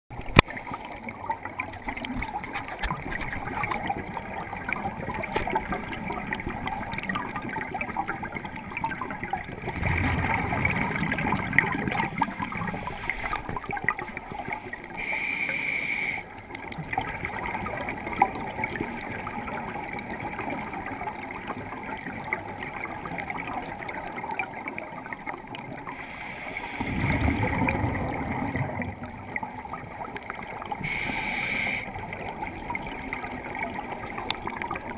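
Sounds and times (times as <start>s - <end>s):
fine underwater crackle: 0.1s - 34.9s
scuba exhaust bubbles gurgling: 0.1s - 34.9s
regulator hiss: 15.0s - 16.2s, 30.8s - 31.9s.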